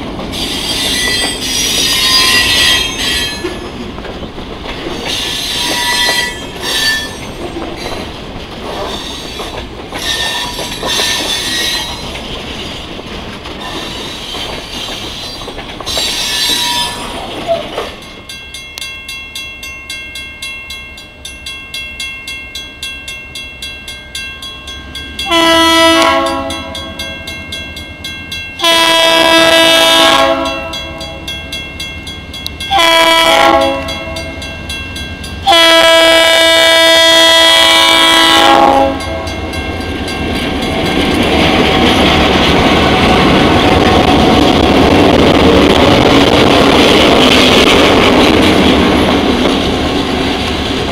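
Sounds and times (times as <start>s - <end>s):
train wheel squeal: 0.3s - 3.8s, 4.9s - 12.8s, 13.6s - 18.2s
locomotive horn blasts: 25.2s - 26.9s, 28.6s - 31.2s, 32.7s - 34.3s, 35.4s - 39.4s.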